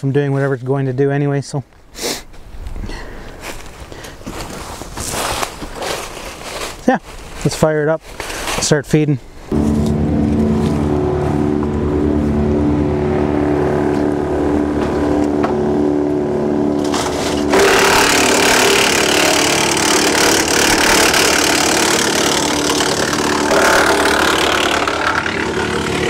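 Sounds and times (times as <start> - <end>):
tractor engine droning: 9.5 - 26.0
wood chipper grinding branch: 9.5 - 26.0.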